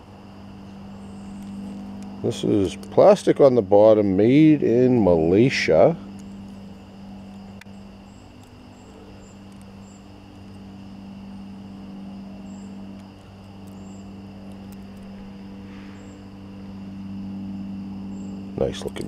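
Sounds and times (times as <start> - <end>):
low room hum: 0.0 - 19.0.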